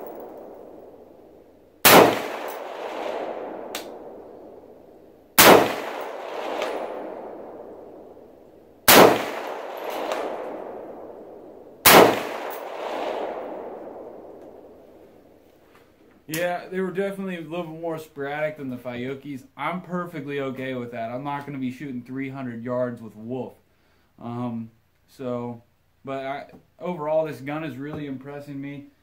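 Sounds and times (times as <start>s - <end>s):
rifle shots echoing: 0.0s - 15.4s.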